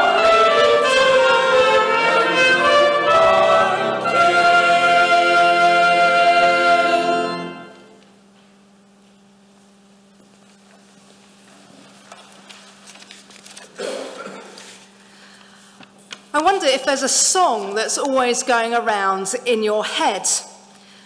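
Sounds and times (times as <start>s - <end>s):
choir singing: 0.0s - 8.0s.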